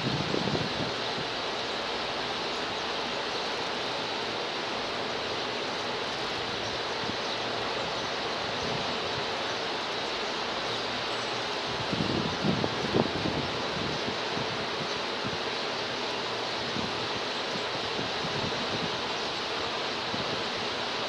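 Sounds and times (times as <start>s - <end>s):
rushing outdoor background noise: 0.0s - 21.0s.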